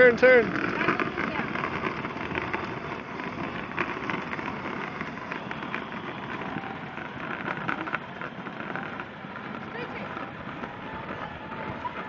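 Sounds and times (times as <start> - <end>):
plastic wheels rolling on asphalt: 0.0 - 12.0.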